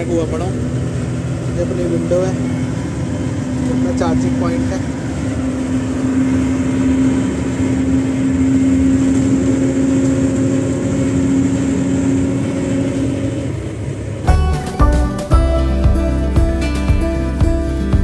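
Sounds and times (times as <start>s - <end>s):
bus engine and road drone: 0.0s - 18.0s
background music: 14.3s - 18.0s.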